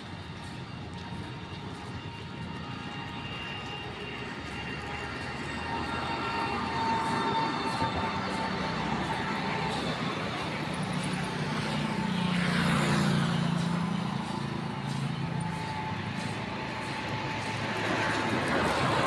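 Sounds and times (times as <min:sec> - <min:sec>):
vehicle passing by: 0:04.2 - 0:19.0.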